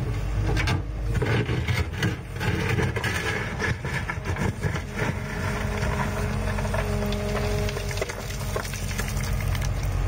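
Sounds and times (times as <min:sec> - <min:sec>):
excavator engine running: 0:00.0 - 0:10.0
stones scraping against steel bucket: 0:01.2 - 0:09.5.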